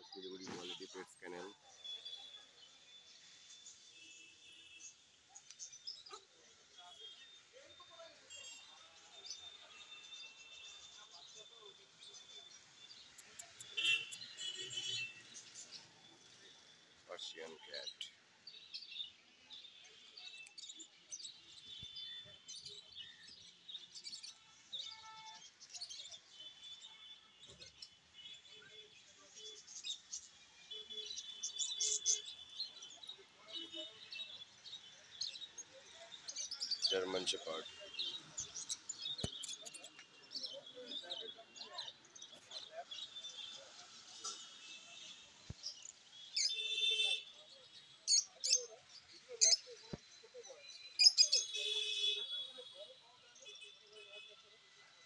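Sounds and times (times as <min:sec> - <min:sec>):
buzzy bird chatter: 0:00.0 - 0:02.2, 0:11.8 - 0:18.1, 0:29.6 - 0:41.6
small birds chirping: 0:00.0 - 0:06.3, 0:09.2 - 0:52.0.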